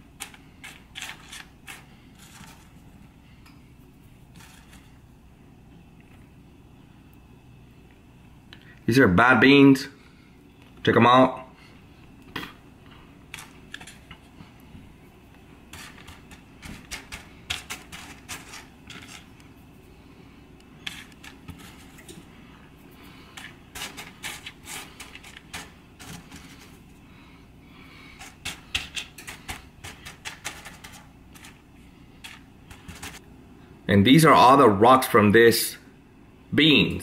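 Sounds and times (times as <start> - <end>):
dry beans clicking and rattling: 0.0 - 2.8, 4.3 - 5.0, 13.3 - 14.3, 15.3 - 19.8, 20.6 - 27.0, 27.9 - 33.2.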